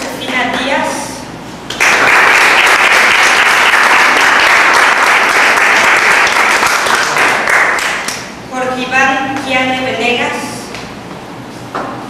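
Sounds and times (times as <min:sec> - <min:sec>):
audience applauding: 0:01.8 - 0:08.3.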